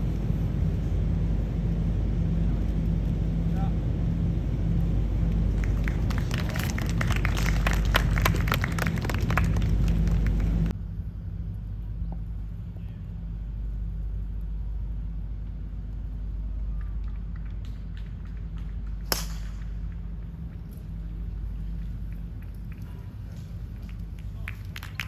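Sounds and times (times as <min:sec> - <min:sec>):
low outdoor rumble: 0:00.0 - 0:25.0
low steady hum: 0:00.0 - 0:25.0
crowd clapping: 0:05.3 - 0:10.7, 0:16.7 - 0:19.1, 0:23.8 - 0:25.0.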